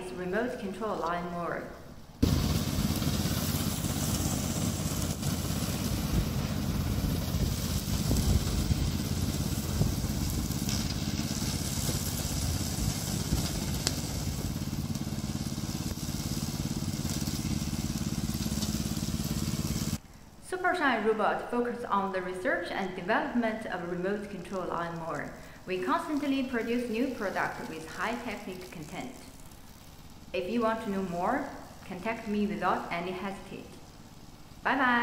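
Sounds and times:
cutting deck hissing through grass: 0:02.2 - 0:20.0
mower engine running: 0:02.2 - 0:20.0.

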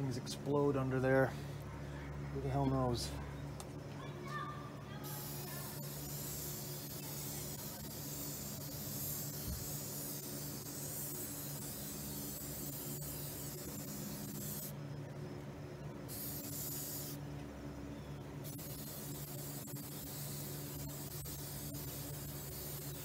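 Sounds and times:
steady low hum: 0:00.0 - 0:23.0
spray cleaner hissing: 0:05.0 - 0:14.7, 0:16.1 - 0:17.2, 0:18.4 - 0:23.0.

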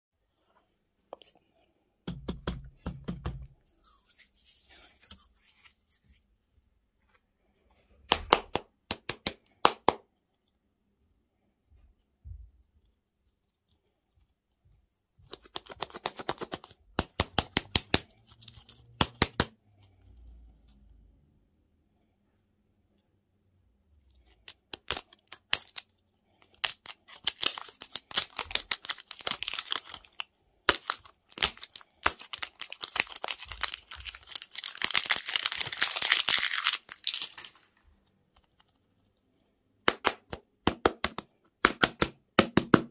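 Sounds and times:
plastic wrapper crackling: 0:24.4 - 0:38.7.

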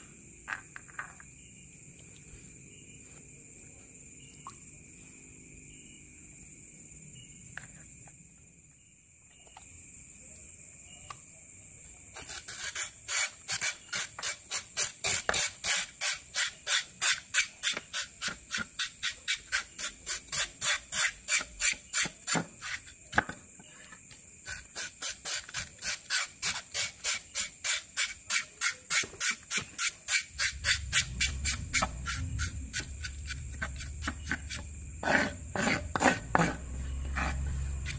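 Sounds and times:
knife scraping fish skin: 0:12.2 - 0:22.0.

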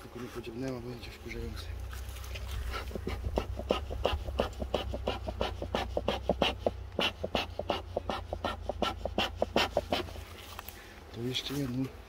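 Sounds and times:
steady low hum: 0:00.0 - 0:12.0
bellows puffing air: 0:02.5 - 0:11.0.

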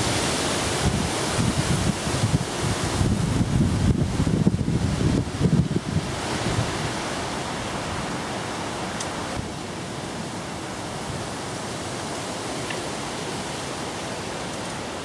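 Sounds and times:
wind buffeting microphone: 0:00.0 - 0:10.2
fast-flowing river water: 0:00.0 - 0:15.0
rush of wind: 0:00.0 - 0:15.0.

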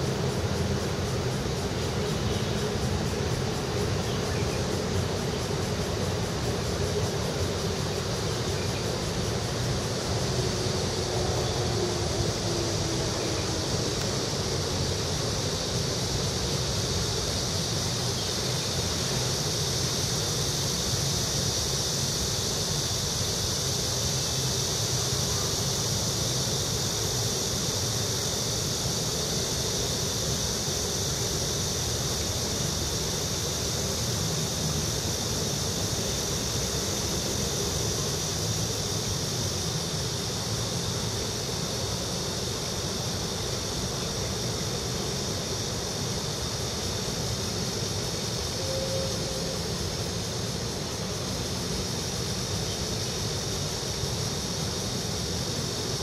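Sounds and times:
low traffic rumble: 0:00.0 - 0:19.0.

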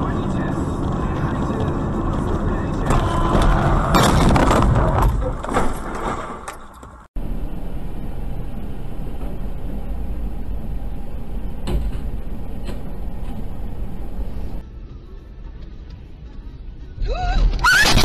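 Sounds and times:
road and engine noise in car: 0:00.0 - 0:03.1, 0:07.0 - 0:17.1
jumble of knocks and noise: 0:00.0 - 0:07.0.

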